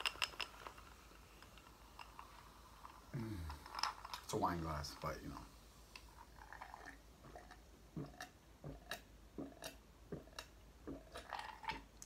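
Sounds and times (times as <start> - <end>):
person swallowing: 3.1 - 3.8, 7.2 - 11.9.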